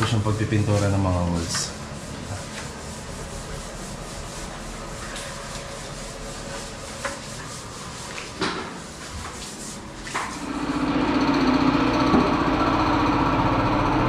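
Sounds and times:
paint rubbing on a wall: 0.0s - 10.5s.

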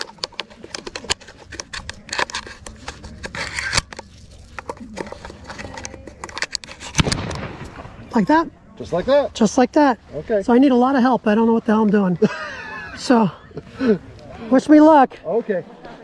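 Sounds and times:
hands rustling on gun: 0.0s - 7.8s.

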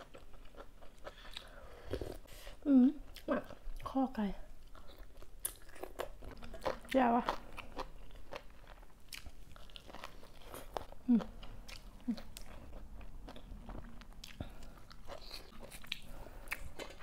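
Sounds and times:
chewing and mouth clicks: 4.6s - 17.0s.

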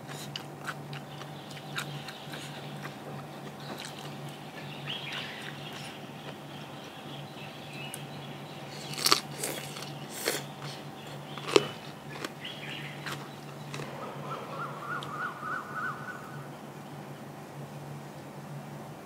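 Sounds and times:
crunchy eating clicks: 0.0s - 7.0s, 8.8s - 14.0s
steady low hum: 0.0s - 19.0s
bird calling: 1.0s - 17.2s.

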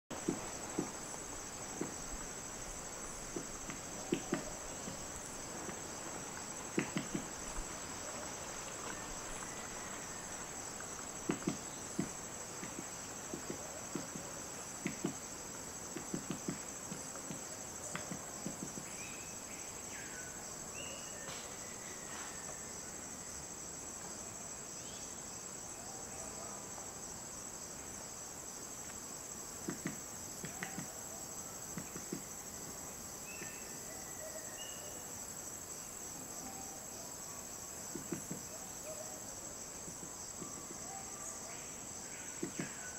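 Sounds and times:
woodpecker pecking on trunk: 6.7s - 7.7s, 10.8s - 15.2s, 15.9s - 18.9s.

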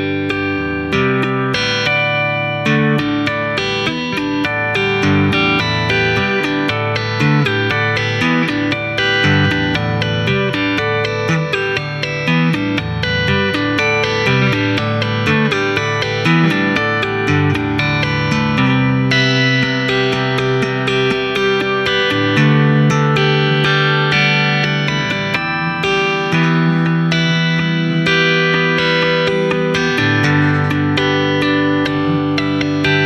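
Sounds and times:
electric guitar tapping: 0.0s - 33.0s.

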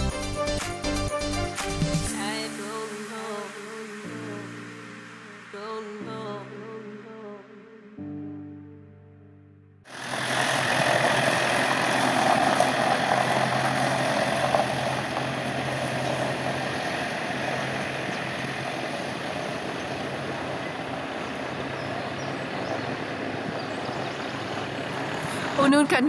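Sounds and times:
tyres on gravel: 9.9s - 26.0s
van engine running: 9.9s - 26.0s.

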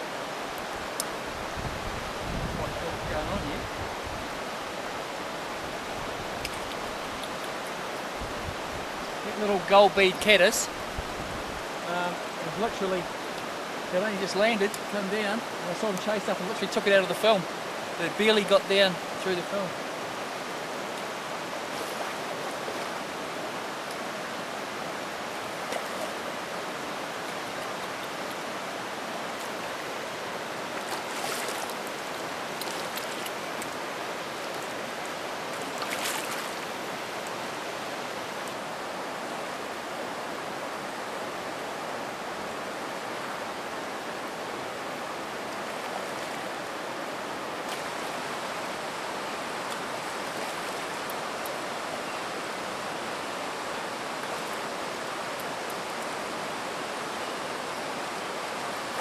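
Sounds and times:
river rushing over stones: 0.0s - 59.0s
water splashing: 25.1s - 37.4s.

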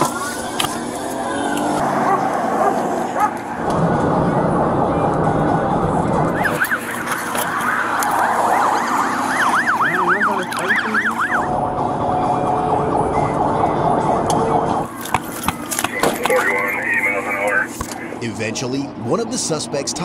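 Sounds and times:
road and wind noise: 0.0s - 20.0s
police siren yelping: 6.2s - 11.6s.

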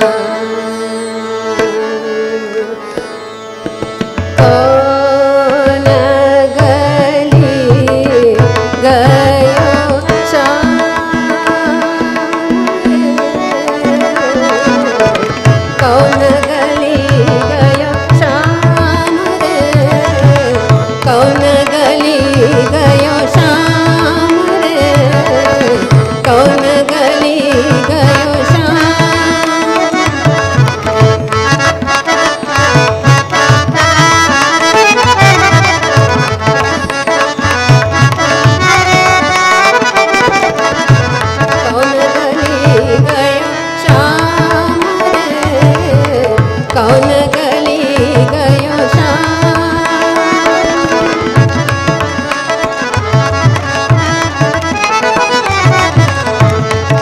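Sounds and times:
woman singing: 0.0s - 3.0s, 4.4s - 31.3s, 41.4s - 52.3s
harmonium melody: 0.0s - 57.0s
tabla rhythm: 0.0s - 57.0s
tanpura drone: 0.0s - 57.0s.

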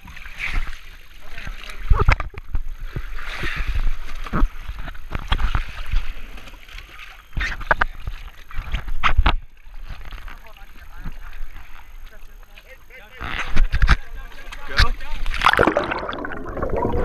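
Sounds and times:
seawater sloshing and splashing: 13.4s - 17.0s.

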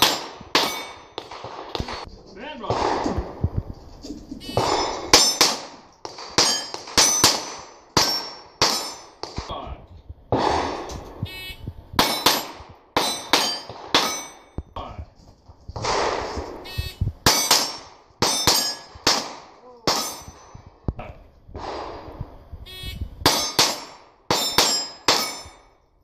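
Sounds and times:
steel plate ringing clang: 0.0s - 1.3s, 4.5s - 5.7s, 6.4s - 9.2s, 12.0s - 14.6s, 17.3s - 19.2s, 19.9s - 20.6s, 23.3s - 25.8s
pistol shots: 0.0s - 3.4s, 4.6s - 9.5s, 10.3s - 11.3s, 12.0s - 14.6s, 15.8s - 20.5s, 23.2s - 25.6s.

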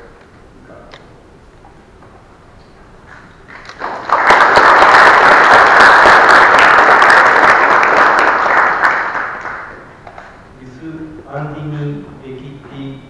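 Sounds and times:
audience applauding: 3.5s - 10.3s.

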